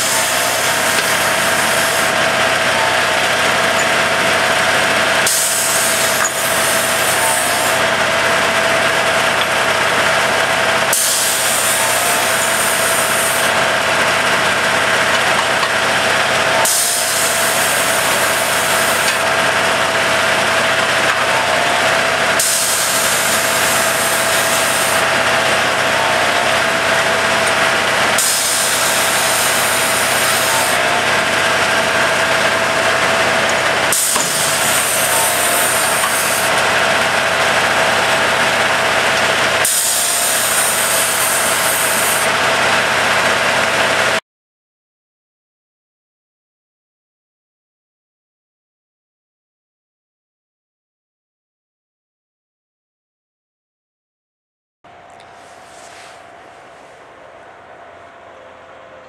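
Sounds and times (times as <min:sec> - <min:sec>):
hiss: 0:00.0 - 0:02.1, 0:05.2 - 0:07.8, 0:10.9 - 0:13.5, 0:16.6 - 0:19.2, 0:22.4 - 0:25.0, 0:28.2 - 0:30.8, 0:33.9 - 0:36.5, 0:39.6 - 0:42.3
diesel engine and hydraulics running: 0:00.0 - 0:44.2, 0:54.9 - 0:59.0
steady whine: 0:00.0 - 0:44.2, 0:54.9 - 0:59.0.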